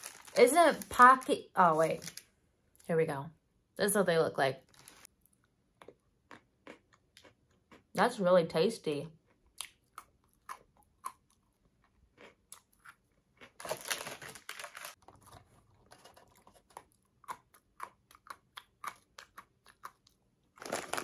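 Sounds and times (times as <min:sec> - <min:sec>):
plastic wrapper crinkling: 0:00.0 - 0:02.2, 0:04.7 - 0:05.1, 0:13.6 - 0:15.2, 0:20.6 - 0:21.0
person chewing crunchy snack: 0:05.3 - 0:07.9, 0:09.3 - 0:21.0.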